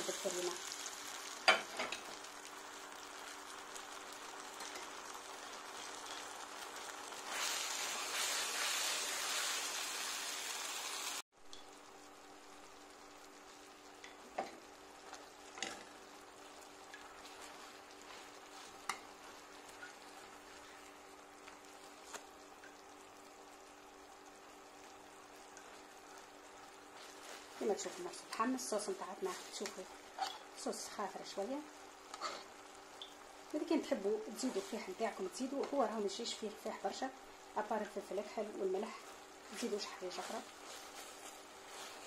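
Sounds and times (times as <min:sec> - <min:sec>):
steak sizzling in a frying pan: 0:00.0 - 0:42.0
sauce bubbling: 0:11.1 - 0:27.6, 0:31.2 - 0:34.4.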